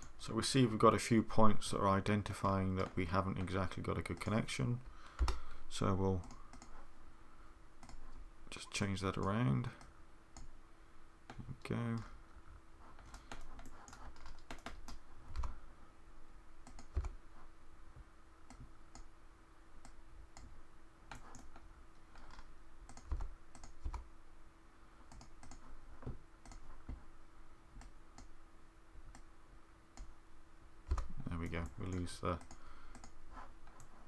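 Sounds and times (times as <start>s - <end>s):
faint steady hum: 0.0s - 34.0s
keyboard and mouse clicks: 6.2s - 6.8s, 7.8s - 8.2s, 13.0s - 15.6s, 16.6s - 17.2s, 21.1s - 24.1s, 25.1s - 27.0s, 30.9s - 34.0s.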